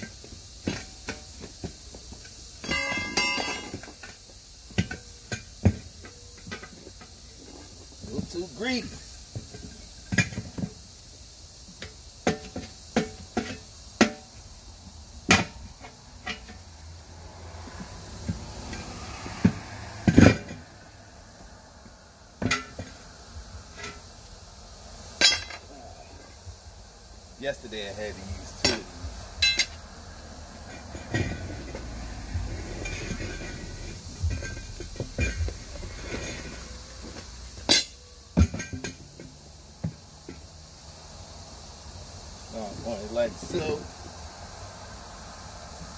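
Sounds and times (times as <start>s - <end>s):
metal tool clanking on wheel rim: 0.0s - 7.6s, 8.2s - 10.8s, 11.8s - 14.4s, 15.2s - 16.6s, 18.7s - 20.6s, 22.4s - 23.0s, 23.7s - 24.1s, 25.2s - 25.7s, 28.6s - 29.8s, 30.7s - 31.9s, 32.6s - 40.4s
sharp metal clanks: 2.6s - 5.8s, 25.2s - 25.8s, 28.5s - 29.8s, 32.8s - 39.3s.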